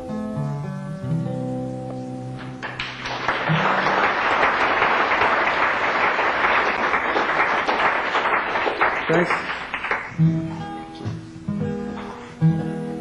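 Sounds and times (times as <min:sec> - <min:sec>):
acoustic guitar: 0:00.0 - 0:04.9, 0:07.6 - 0:13.0
audience applause: 0:02.6 - 0:10.2.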